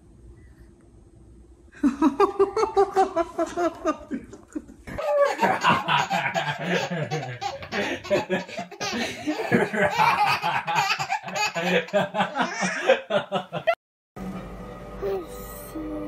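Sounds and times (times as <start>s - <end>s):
baby belly laughing: 4.9s - 13.1s.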